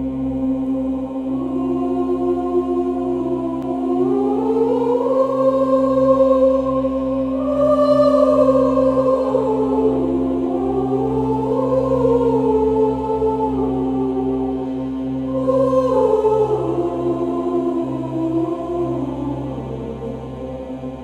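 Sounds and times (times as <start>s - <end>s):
choir singing held notes: 0.0s - 21.0s
steady low drone: 0.0s - 21.0s.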